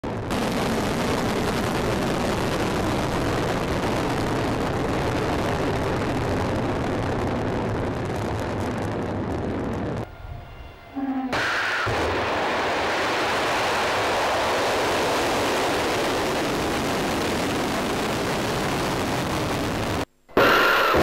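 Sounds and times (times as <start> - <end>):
rocket engine roar: 0.0 - 21.0.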